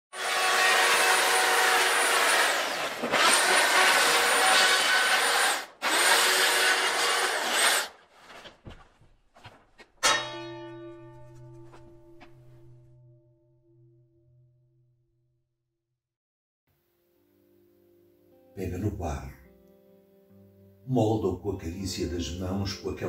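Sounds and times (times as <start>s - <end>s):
power tool motor whining: 0.1s - 8.0s
struck musical note ringing: 10.0s - 15.0s.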